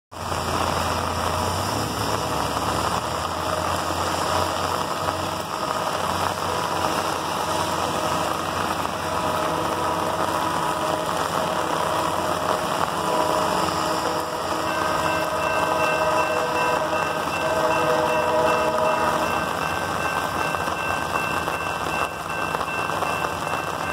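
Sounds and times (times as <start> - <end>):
rain hissing: 0.1 - 23.9
low engine rumble: 0.2 - 23.9
faint steady tones: 4.7 - 23.9.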